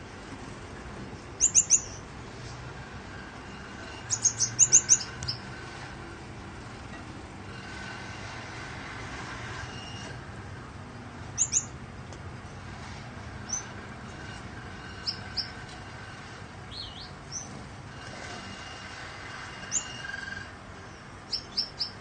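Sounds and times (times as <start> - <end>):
electric fan whirring: 0.0 - 22.0
finches chirping: 1.4 - 2.1, 3.5 - 5.8, 11.3 - 11.8, 13.4 - 15.6, 16.7 - 17.5, 19.6 - 22.0.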